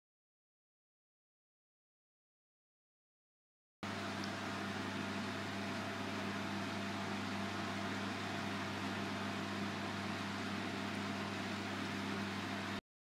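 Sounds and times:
fan heater air rush: 3.8 - 12.8
low electrical hum: 3.8 - 12.8.

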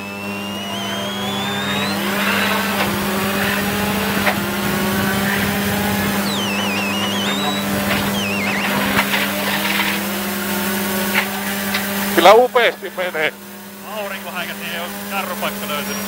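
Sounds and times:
high warbling whistles: 0.0 - 10.2
rally car engine accelerating: 0.0 - 16.0.

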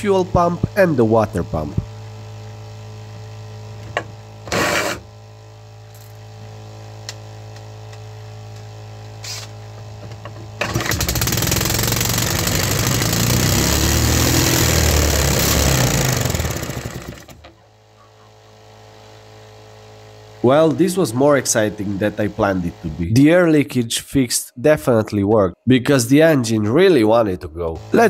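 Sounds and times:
pumps humming: 7.9 - 23.6, 27.8 - 28.0
single-cylinder engine running fast: 10.6 - 17.5.

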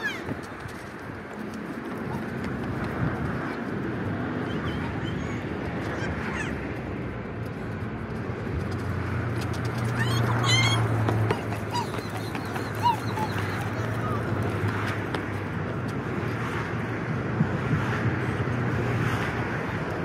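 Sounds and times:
steady outdoor rush: 0.0 - 20.0
gulls calling: 4.2 - 6.8, 9.7 - 15.3.

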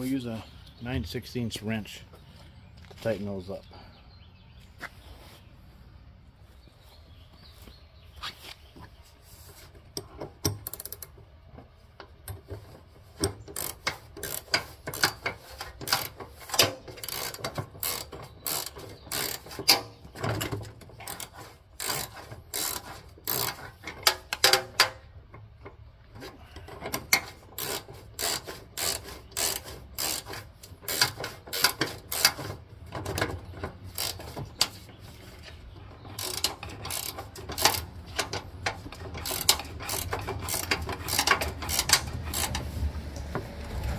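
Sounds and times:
ratcheting wrench clicking: 10.0 - 11.2, 13.2 - 25.0, 26.8 - 34.8, 36.1 - 42.7.

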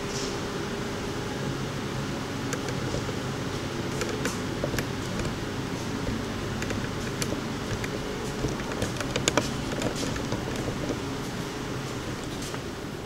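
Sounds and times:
fan machinery humming: 0.0 - 13.0
light clicks and taps: 6.1 - 11.0.

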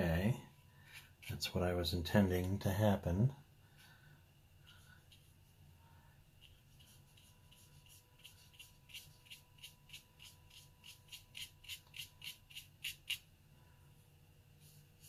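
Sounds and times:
brush strokes on paper: 4.6 - 5.6, 6.4 - 13.2, 14.6 - 15.0.

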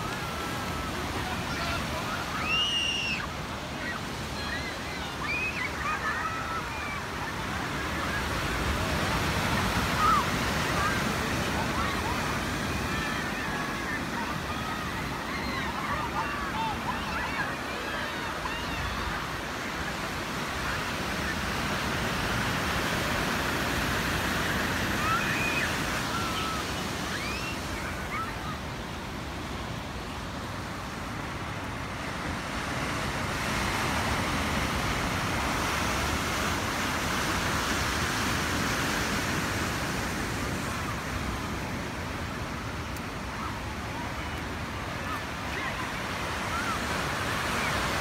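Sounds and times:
ocean surf breaking over rocks: 0.0 - 48.0.

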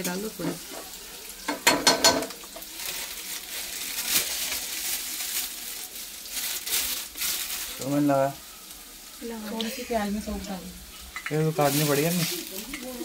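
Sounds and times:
onions sizzling in oil: 0.0 - 13.0.

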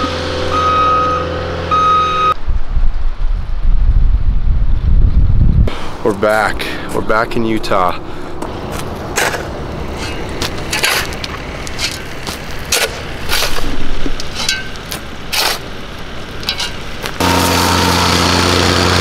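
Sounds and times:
engine running steadily: 5.8 - 19.0
knocks and scrapes: 8.4 - 15.7, 16.4 - 17.2.

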